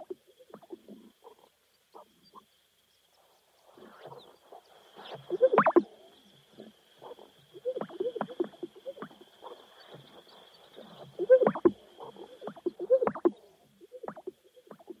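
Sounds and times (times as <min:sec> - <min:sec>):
grouse low pops and gulps: 0:05.2 - 0:05.9, 0:07.8 - 0:10.2, 0:10.8 - 0:13.4, 0:14.0 - 0:15.0.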